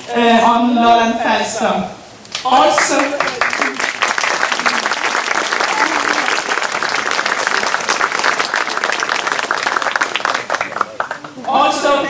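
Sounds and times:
audience applauding: 2.5s - 11.8s.

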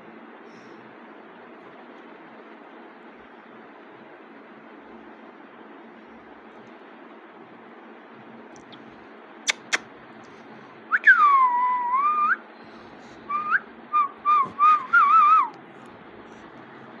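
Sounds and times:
parakeet whistling: 13.3s - 15.6s.

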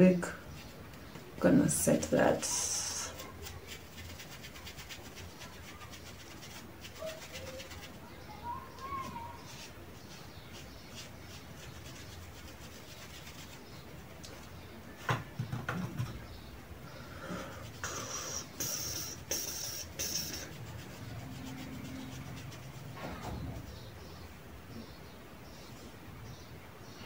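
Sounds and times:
brush rubbing scratchily: 1.7s - 14.6s, 17.4s - 23.9s.

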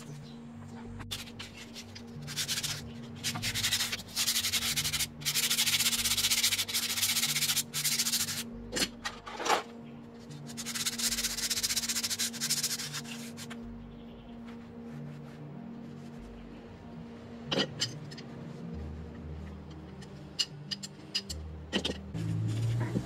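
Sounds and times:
sandpaper rubbing on metal drum: 1.1s - 8.5s, 10.5s - 13.6s.

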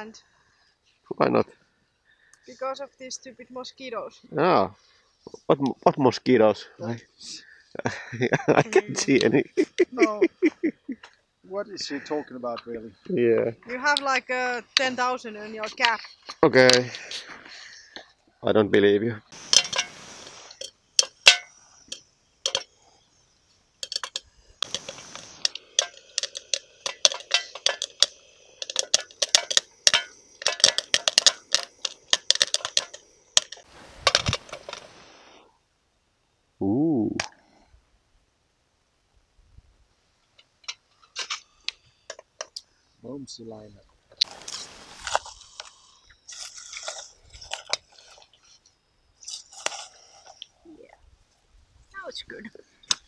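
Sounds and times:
gas stove hiss: 19.3s - 35.6s, 44.2s - 46.2s
popcorn popping in metal pot: 19.4s - 22.7s, 23.8s - 34.8s
popcorn crunching: 23.8s - 33.6s, 44.2s - 48.4s, 49.2s - 50.5s.

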